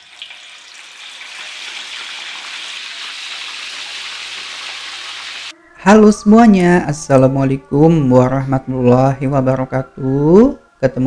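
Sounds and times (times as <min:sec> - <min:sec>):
chicken sizzling in hot oil: 0:00.0 - 0:05.5.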